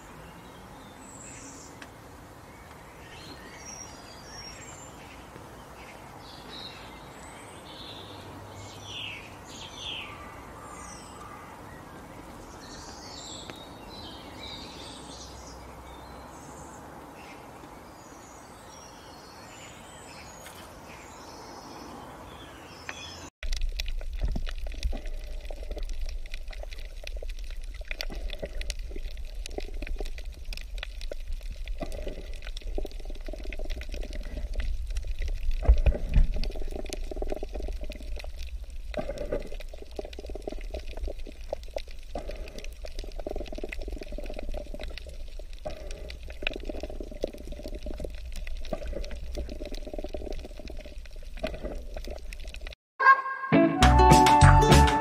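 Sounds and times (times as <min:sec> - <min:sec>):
faint underwater clicks: 0:22.9 - 0:52.8
underwater rumble and sloshing: 0:23.4 - 0:52.8.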